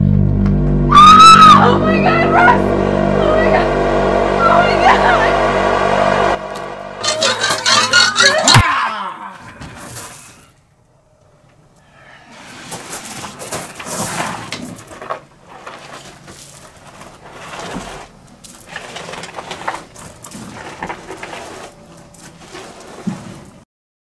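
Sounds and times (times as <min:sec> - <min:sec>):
body dragged across gravel: 0:12.2 - 0:23.6.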